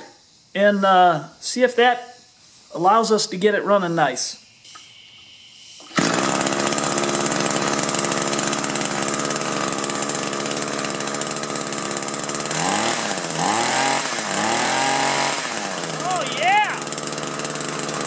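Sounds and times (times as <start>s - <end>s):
string trimmer engine revving: 5.8s - 18.0s.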